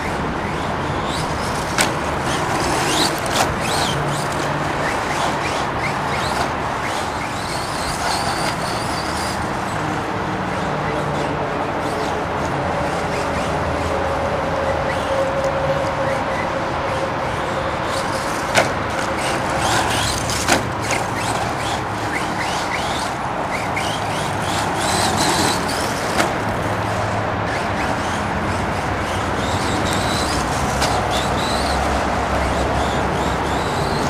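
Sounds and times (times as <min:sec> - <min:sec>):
rc truck motor whining: 0:00.0 - 0:34.0
tyre and track noise: 0:00.0 - 0:34.0.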